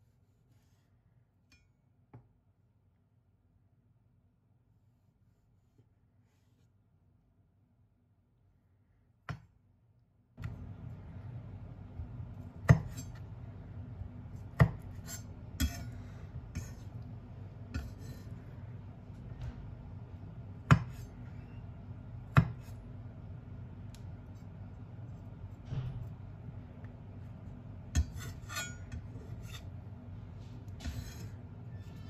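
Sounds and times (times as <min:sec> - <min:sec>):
steady low hum: 0:07.0 - 0:32.0.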